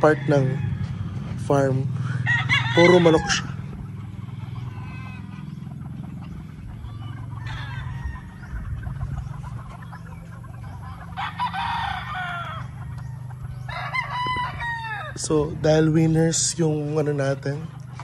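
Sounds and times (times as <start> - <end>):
steady low hum: 0.0 - 11.2
roosters crowing: 0.0 - 18.0.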